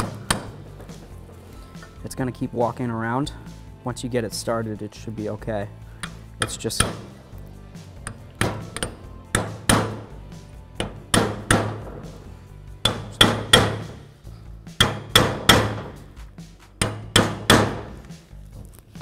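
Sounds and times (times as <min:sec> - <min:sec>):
hammer tapping metal punch: 0:00.0 - 0:01.0, 0:06.0 - 0:07.2, 0:08.0 - 0:12.2, 0:12.8 - 0:14.0, 0:14.8 - 0:16.1, 0:16.8 - 0:18.1.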